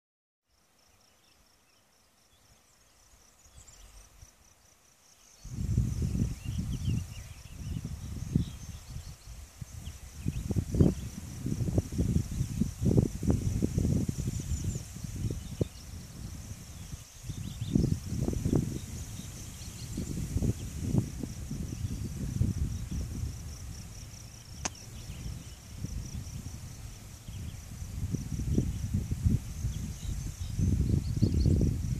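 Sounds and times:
insect chirping: 0.5s - 31.9s
wind buffeting microphone: 5.4s - 31.9s
sharp click: 24.6s - 24.8s.

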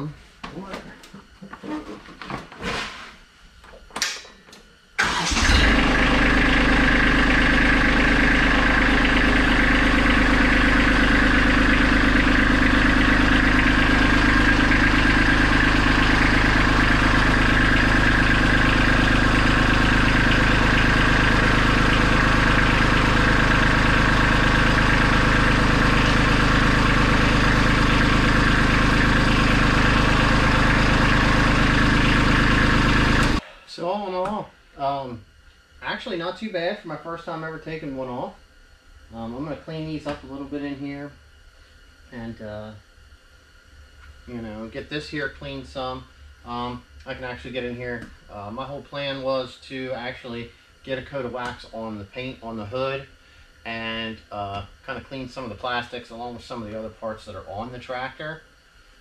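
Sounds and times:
tractor diesel engine idling: 5.0s - 33.4s.

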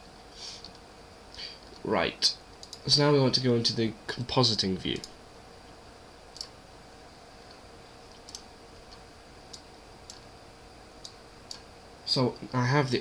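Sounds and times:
low background hum: 0.0s - 13.0s
faint computer mouse clicks: 2.6s - 2.8s, 7.5s - 10.2s.

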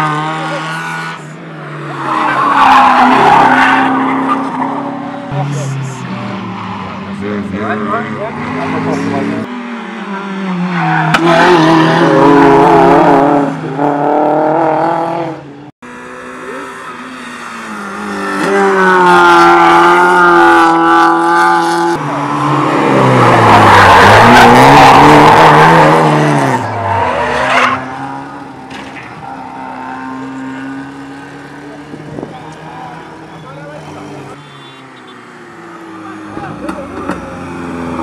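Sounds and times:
car engines revving: 0.0s - 38.0s.

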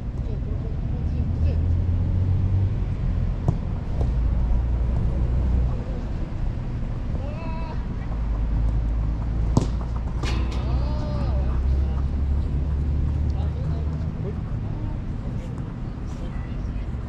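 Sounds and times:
player shouting: 7.2s - 7.9s.

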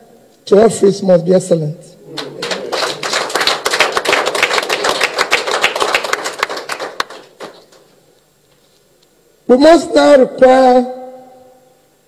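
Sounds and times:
crowd applauding: 2.0s - 7.9s.

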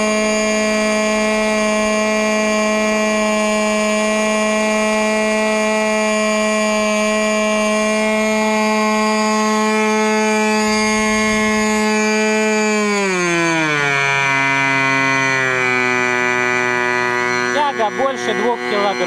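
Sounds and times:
model aircraft engine running: 0.0s - 19.0s.

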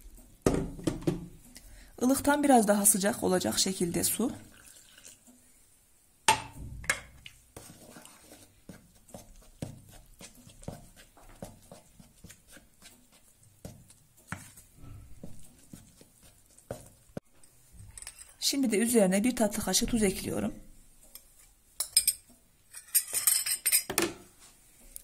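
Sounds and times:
spoon scraping plastic bowl: 7.1s - 17.2s.

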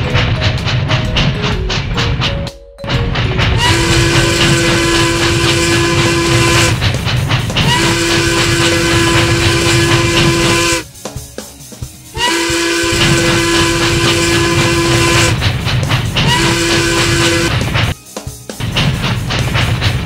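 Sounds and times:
train running rumble: 0.0s - 20.0s
steam locomotive whistle: 3.6s - 6.8s, 7.6s - 10.9s, 12.2s - 15.4s, 16.2s - 17.6s.

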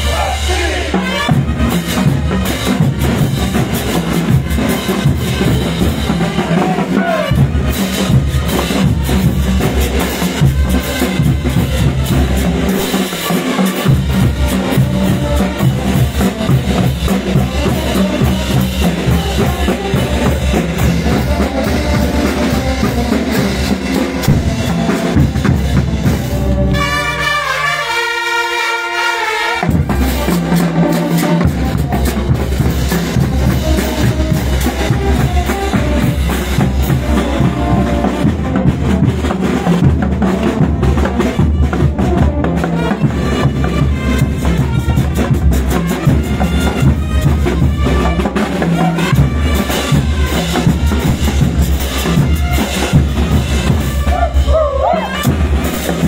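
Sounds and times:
brass band playing dance music: 0.0s - 56.0s
snare drums: 0.0s - 56.0s
bass drum: 13.8s - 26.8s, 31.4s - 56.0s.

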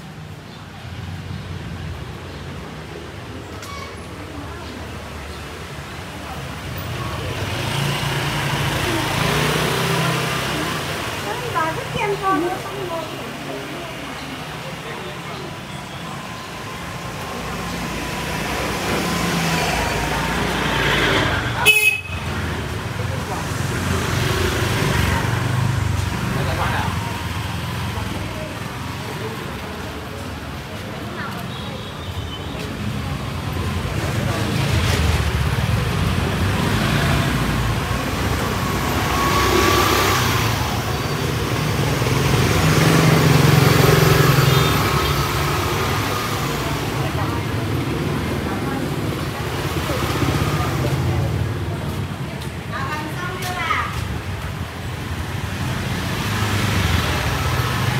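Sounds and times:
motorbikes riding past: 0.2s - 31.5s, 32.5s - 57.9s
motor scooter engine passing: 6.8s - 14.6s, 33.1s - 51.9s.

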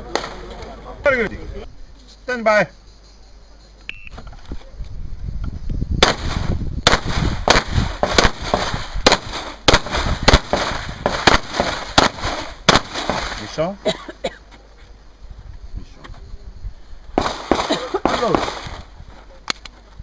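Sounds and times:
shot timer beep: 3.9s - 4.2s
pistol shots: 6.0s - 13.5s, 17.2s - 18.8s.

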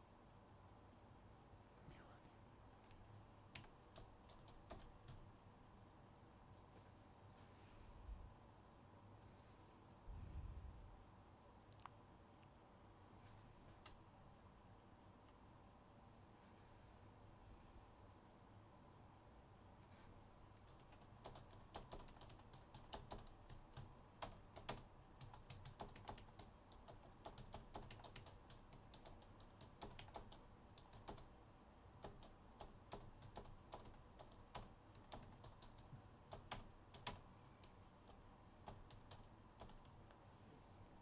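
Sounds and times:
typing on computer keyboard: 3.5s - 5.3s, 20.6s - 31.4s, 32.0s - 40.0s.

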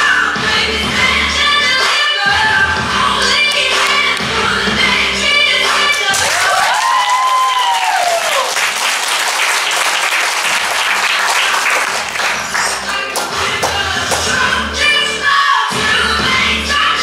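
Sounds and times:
audience clapping: 5.8s - 14.4s
person whooping: 6.2s - 8.6s.

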